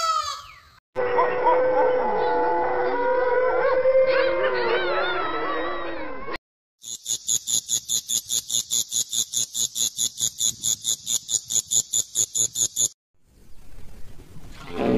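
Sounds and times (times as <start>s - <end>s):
insect chirping: 6.8s - 13.0s.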